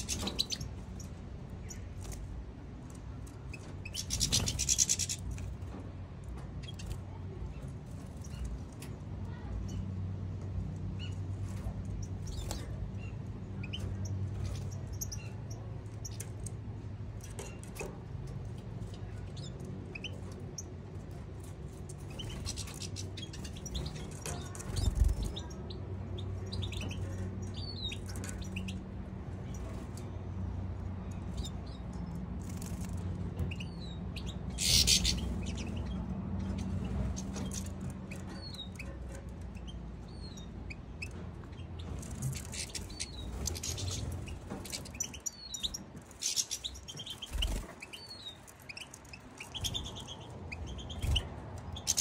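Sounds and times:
finches twittering: 33.5 - 38.8, 41.5 - 52.0.

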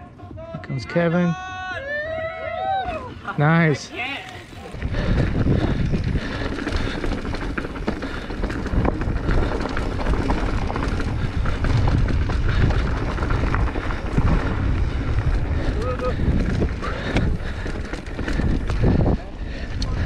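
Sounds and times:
bike rattling: 2.0 - 20.0
wind buffeting microphone: 4.4 - 20.0.

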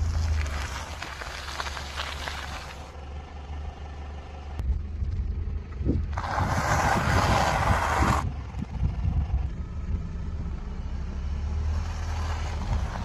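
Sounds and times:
tyre crunching wafer bars: 0.0 - 3.0
car engine idling low: 0.0 - 6.4, 8.2 - 11.8.

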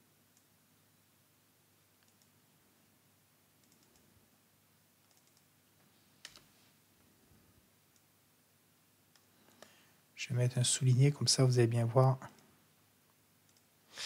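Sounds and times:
keyboard and mouse clicks: 2.0 - 2.4, 3.6 - 4.1, 5.0 - 5.5, 6.2 - 6.5, 13.5 - 13.7.

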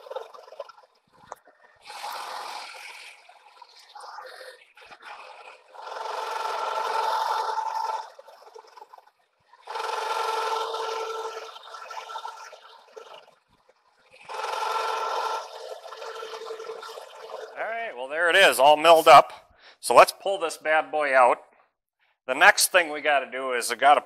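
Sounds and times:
milling machine cutting metal: 5.6 - 8.3, 9.7 - 13.1, 14.2 - 17.6.

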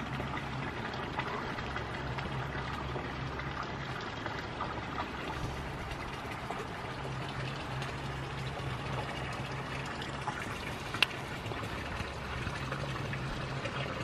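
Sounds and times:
steady rushing outdoor noise: 0.0 - 14.0.

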